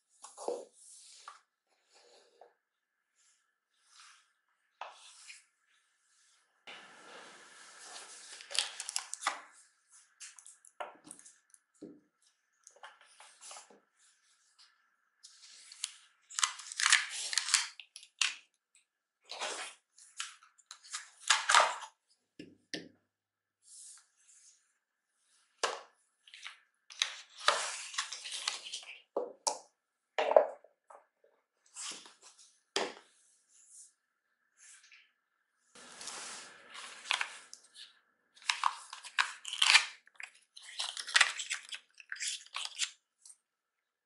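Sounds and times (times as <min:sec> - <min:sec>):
plastic packaging crinkling: 0:38.4 - 0:42.9.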